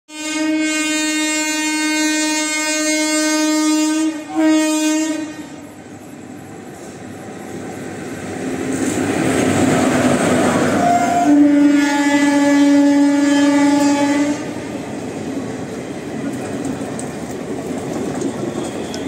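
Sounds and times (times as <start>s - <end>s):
train horn blasts: 0.1s - 5.7s, 10.6s - 14.7s
train rumbling: 1.2s - 19.0s.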